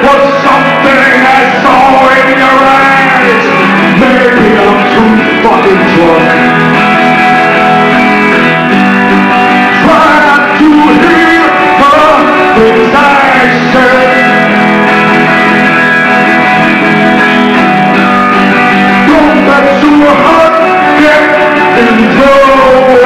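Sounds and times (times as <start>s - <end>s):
man singing: 0.0s - 6.7s, 9.6s - 14.9s, 18.6s - 23.0s
acoustic guitar strumming: 0.0s - 23.0s.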